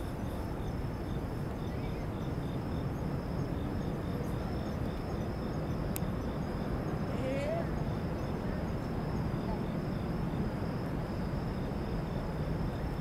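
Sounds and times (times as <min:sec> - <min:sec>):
distant city rumble: 0:00.0 - 0:13.0
insect chirping: 0:00.0 - 0:13.0
wind: 0:00.0 - 0:13.0.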